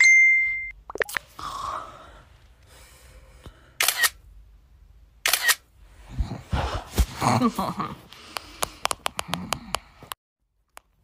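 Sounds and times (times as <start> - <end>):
camera shutter clicks: 3.8 - 4.2, 5.2 - 5.6.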